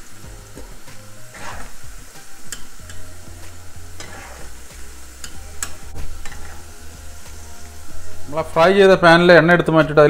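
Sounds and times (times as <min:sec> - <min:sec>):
food sizzling in hot oil: 0:00.0 - 0:10.0
metal spoon scraping a pan: 0:01.3 - 0:01.9, 0:02.5 - 0:03.2, 0:03.9 - 0:06.8.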